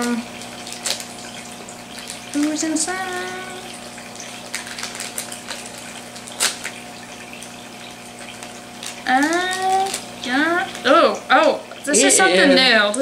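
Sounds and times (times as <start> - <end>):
background hiss and hum: 0.0 - 13.0
package crinkling and rustling: 0.4 - 2.6, 4.1 - 7.5, 8.2 - 10.9.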